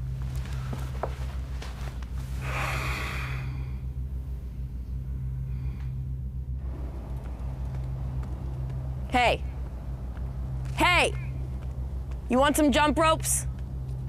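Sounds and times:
steady low hum: 0.0s - 14.0s
breathy exhale: 2.4s - 3.8s, 5.4s - 6.1s.

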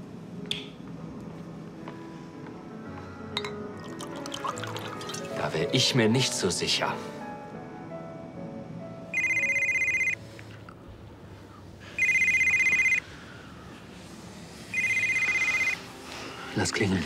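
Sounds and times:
telephone warbling ring: 9.1s - 10.2s, 12.0s - 13.0s, 14.7s - 15.8s.

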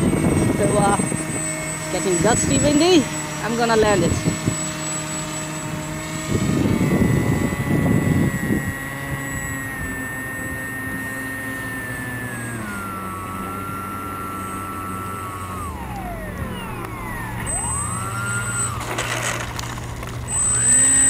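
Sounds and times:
electric motor and propeller whining: 0.0s - 21.0s.

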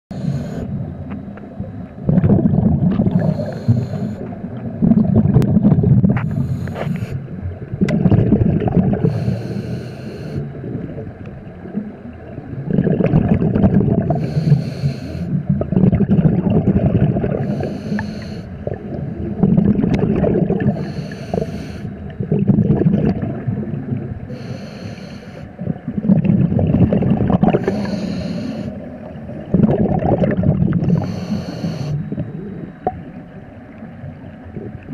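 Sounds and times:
regulator hiss on inhale: 0.1s - 0.8s, 3.1s - 4.4s, 6.1s - 7.3s, 9.0s - 10.6s, 14.1s - 15.4s, 17.4s - 18.8s, 20.7s - 22.1s, 24.2s - 25.6s, 27.5s - 29.0s, 30.8s - 32.6s
bubbling exhaled air: 2.0s - 7.2s, 7.8s - 10.7s, 12.6s - 33.2s.

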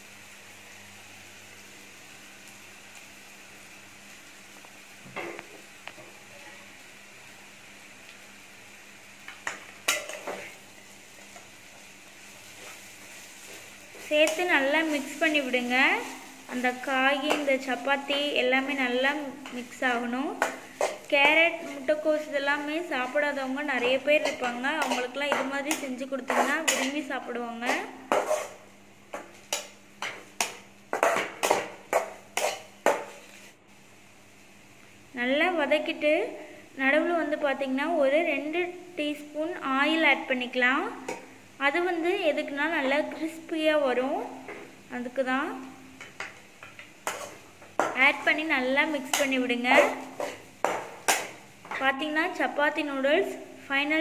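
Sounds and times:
vegetables sizzling in oil: 0.0s - 54.0s
metal spatula scraping a pan: 23.8s - 27.0s, 27.6s - 28.6s, 30.4s - 32.7s, 47.0s - 48.0s, 49.0s - 51.3s.

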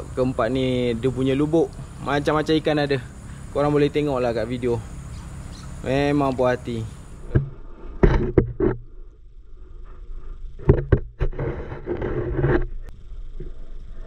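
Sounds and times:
muffled underwater knocks and scrapes: 7.3s - 9.0s, 9.8s - 13.7s.

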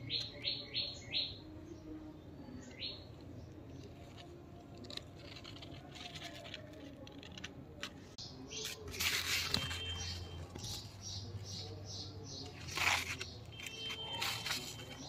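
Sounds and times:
bird chirping: 0.0s - 4.3s, 9.5s - 15.0s.

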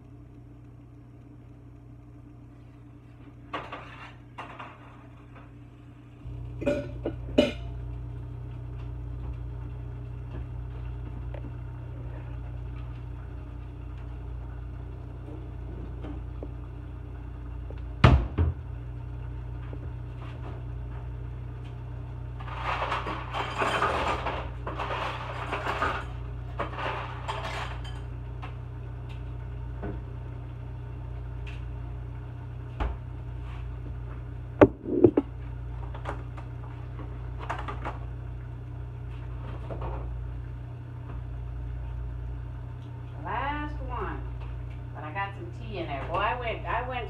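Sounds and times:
steady low hum: 0.0s - 47.0s
clattering and rustling: 22.4s - 28.1s
sharp knocks: 34.6s - 35.2s.

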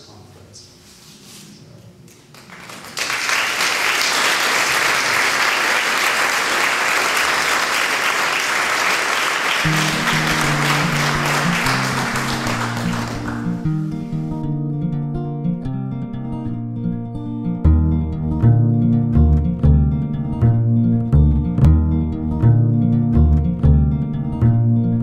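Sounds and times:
audience applauding: 2.3s - 13.7s
instrumental music with low notes: 9.7s - 25.0s.

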